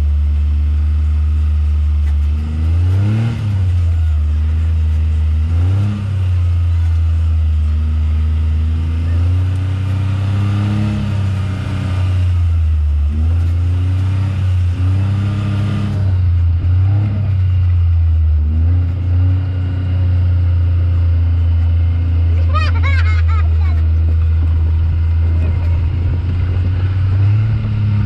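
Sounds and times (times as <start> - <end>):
pickup truck engine running: 0.0 - 28.0.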